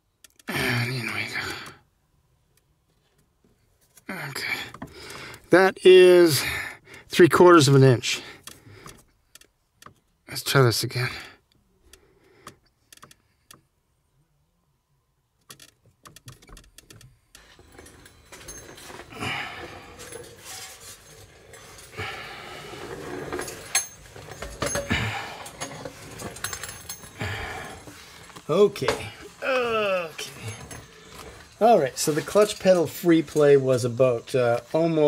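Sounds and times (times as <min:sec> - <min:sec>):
rustling handling noise: 0:17.4 - 0:34.9
light metallic clinks: 0:23.3 - 0:28.4.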